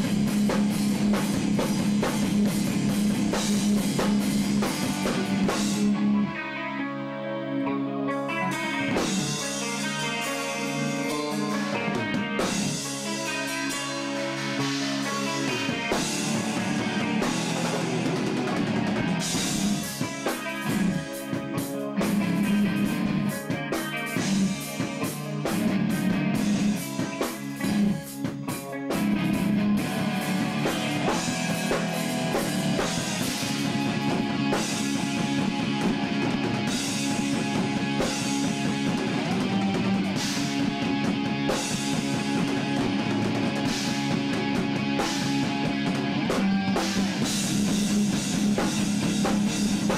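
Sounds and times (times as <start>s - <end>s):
drum kit: 0.0s - 6.4s, 8.3s - 49.9s
bass guitar: 0.0s - 49.9s
electric guitar: 0.0s - 49.9s.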